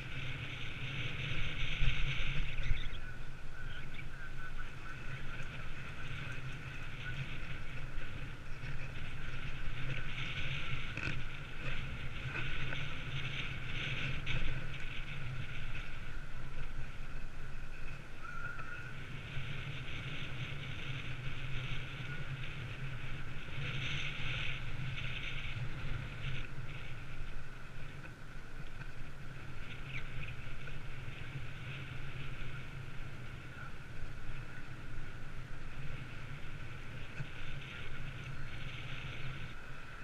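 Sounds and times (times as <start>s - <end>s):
bicycle tyres rolling on pavement: 0.0s - 40.0s
wind noise: 0.0s - 40.0s.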